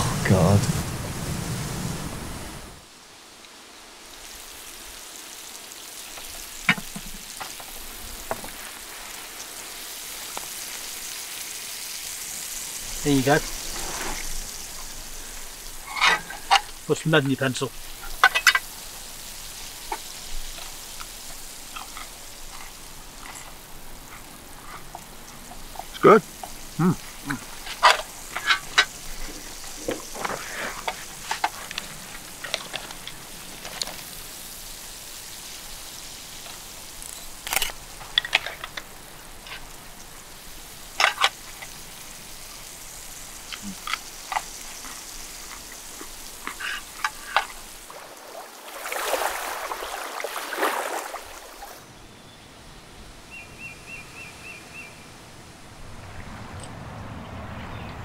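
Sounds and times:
fork scraping metal tin: 15.8s - 16.7s.

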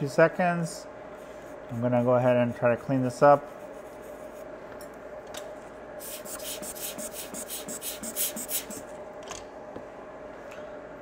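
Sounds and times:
small brush scrubbing: 6.0s - 8.8s.

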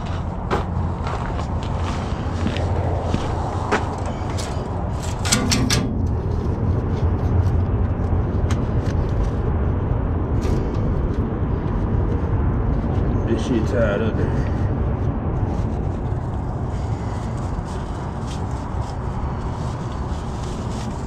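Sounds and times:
low rumble: 0.0s - 21.0s
sharp clicks and knocks: 5.0s - 6.6s.

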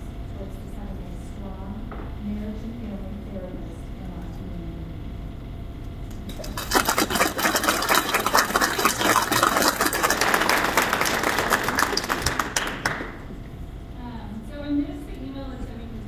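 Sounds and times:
audience applauding: 6.3s - 13.4s.

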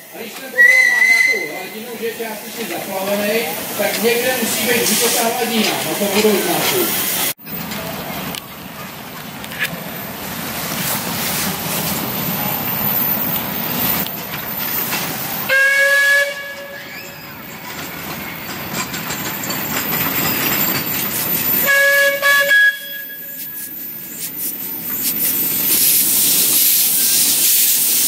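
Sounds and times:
steam locomotive whistle blasts: 0.5s - 1.6s, 15.5s - 16.9s, 21.6s - 23.7s
steady hissing: 23.4s - 28.0s.

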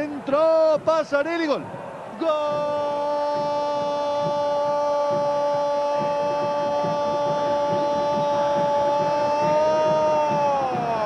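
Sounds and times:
commentator crying goal: 2.2s - 11.0s.

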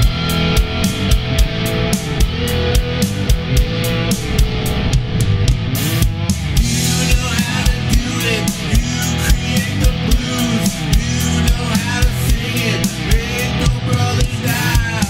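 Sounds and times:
drum kit beat: 0.0s - 15.0s
electric guitar: 0.0s - 15.0s.

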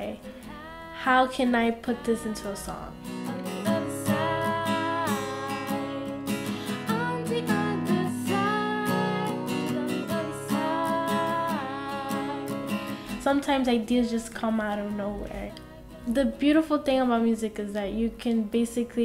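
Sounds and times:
woman singing held notes: 0.0s - 5.9s
strummed acoustic guitar: 0.0s - 17.2s.

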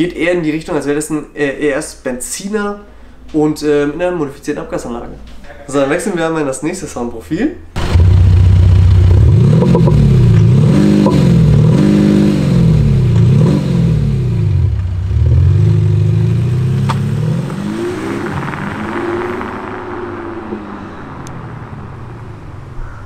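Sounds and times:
synthetic engine note: 7.8s - 11.8s
diesel car engine revving: 7.8s - 23.0s.

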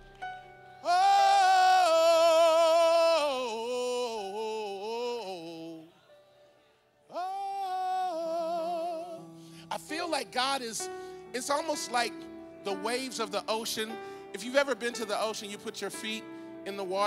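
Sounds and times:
person singing high notes: 0.8s - 6.1s, 7.1s - 9.3s.

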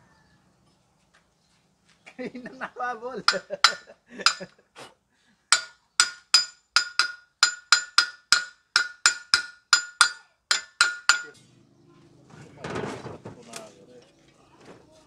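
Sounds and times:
hammer ringing on metal: 3.3s - 4.5s, 5.5s - 11.6s.

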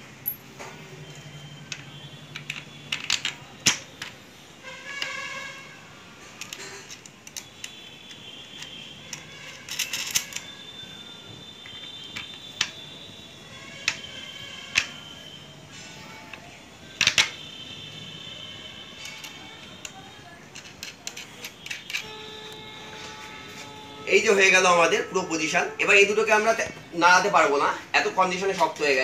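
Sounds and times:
small hardware clicking and clinking: 6.4s - 10.5s, 19.0s - 22.1s.

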